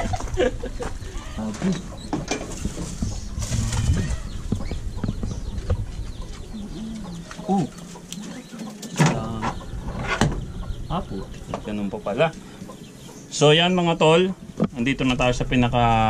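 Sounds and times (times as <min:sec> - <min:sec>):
animal chirps and squeaks: 0:00.9 - 0:13.4.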